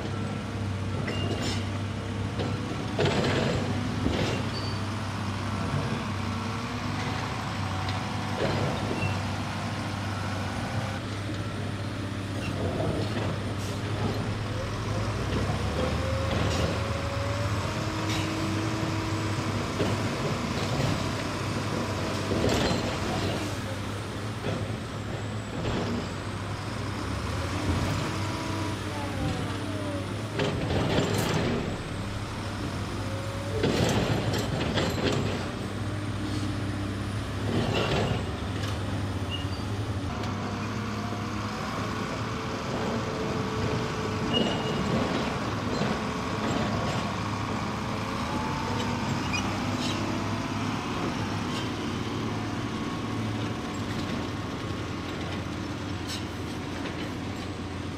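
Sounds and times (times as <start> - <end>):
heavy diesel engine running: 0.0 - 57.9.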